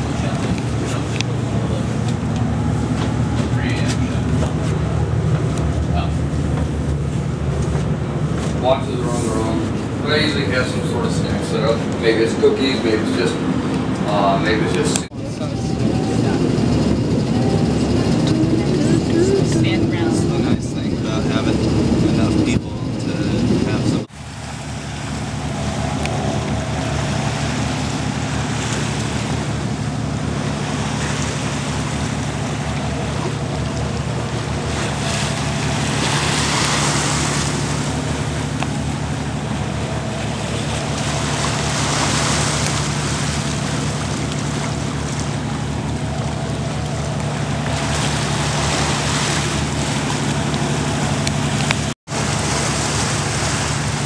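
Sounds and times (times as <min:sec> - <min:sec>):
sea water splashing along hull: 0:00.0 - 0:54.0
steady low hum: 0:00.0 - 0:54.0
wind on microphone: 0:15.1 - 0:24.1.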